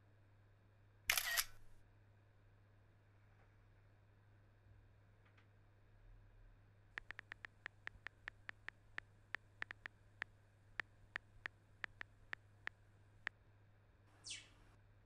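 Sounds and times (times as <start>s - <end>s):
phone keyboard clicks: 7.0s - 10.0s, 10.8s - 12.8s.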